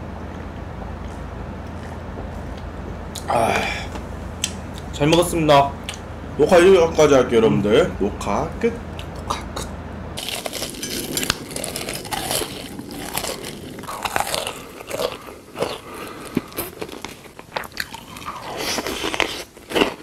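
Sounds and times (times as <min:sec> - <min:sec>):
crunchy chewing of food: 0:10.2 - 0:20.0.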